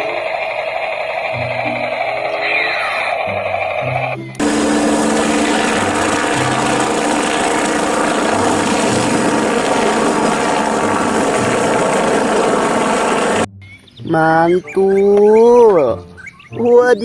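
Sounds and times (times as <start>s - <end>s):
helicopter hovering: 0.0s - 13.5s.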